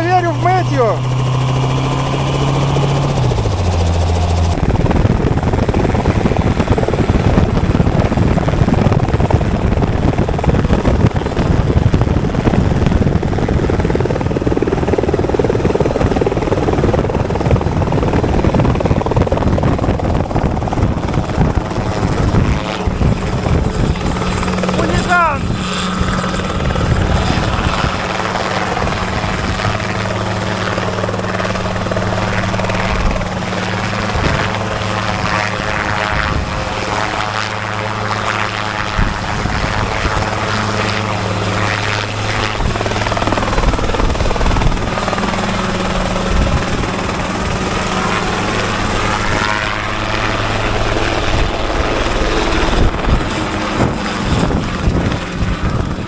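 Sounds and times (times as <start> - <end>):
helicopter rotor chopping: 0.0 - 56.0.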